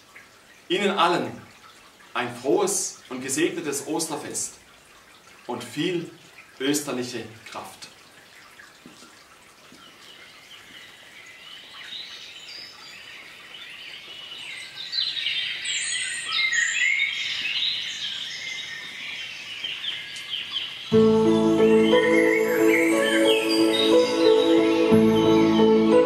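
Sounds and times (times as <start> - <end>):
small birds chirping: 9.6 - 26.0
music: 20.9 - 26.0.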